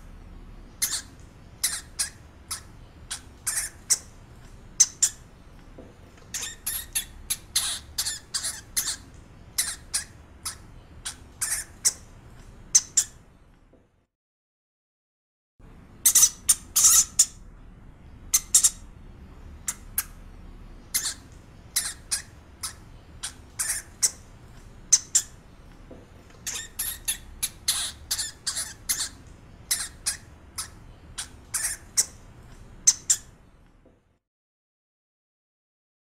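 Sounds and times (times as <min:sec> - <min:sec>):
hamster squeaking: 0:00.8 - 0:05.3, 0:06.2 - 0:12.1, 0:12.7 - 0:13.2, 0:16.0 - 0:17.4, 0:18.3 - 0:18.9, 0:20.9 - 0:25.4, 0:26.3 - 0:33.4.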